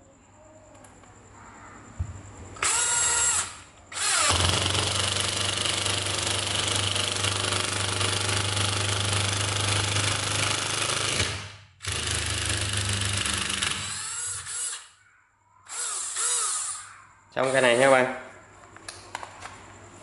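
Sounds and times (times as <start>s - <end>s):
impact driver rattling: 2.6s - 14.8s.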